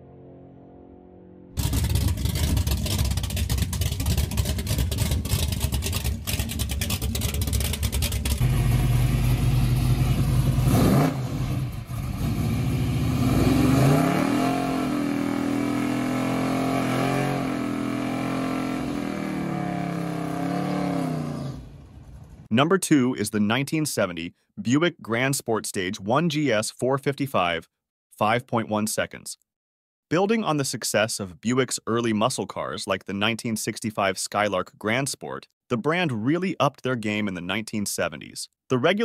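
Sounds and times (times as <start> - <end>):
car engine revving high: 1.6 - 22.4
drag car engine at full throttle: 1.6 - 22.5.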